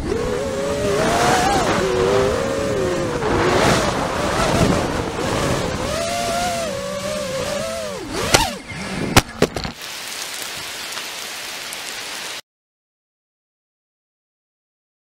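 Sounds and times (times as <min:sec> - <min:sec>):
drone motors whining: 0:00.0 - 0:09.8
sharp knocks on asphalt: 0:09.2 - 0:09.8.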